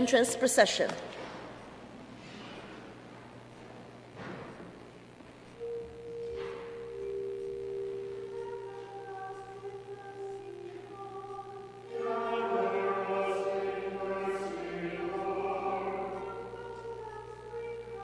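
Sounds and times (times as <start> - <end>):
pipe organ chords: 5.6 - 18.0
voices singing a hymn: 5.6 - 18.0.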